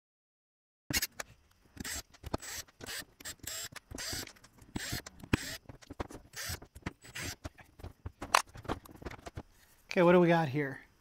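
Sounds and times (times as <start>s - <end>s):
plastic and metal parts clicking: 0.9s - 9.5s
scratchy bursts: 1.8s - 9.5s.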